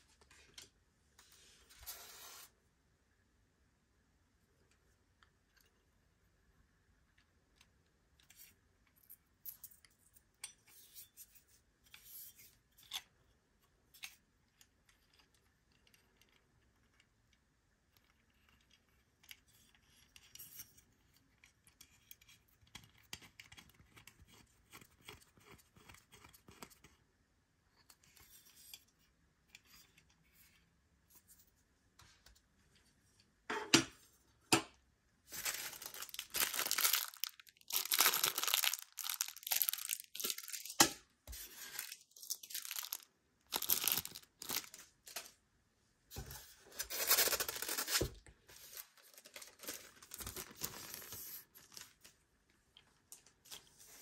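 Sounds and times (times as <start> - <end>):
foam and plastic wrap rustling: 35.3 - 40.8, 41.4 - 45.3, 46.5 - 52.1
foam tearing and crinkling: 35.3 - 40.8, 41.6 - 44.8.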